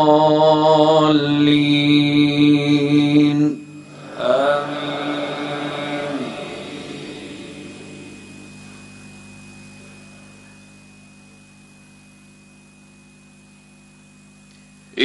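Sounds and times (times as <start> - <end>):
reverberant voices: 0.0 - 8.8
electrical hum: 0.0 - 15.0
high whine: 0.0 - 15.0.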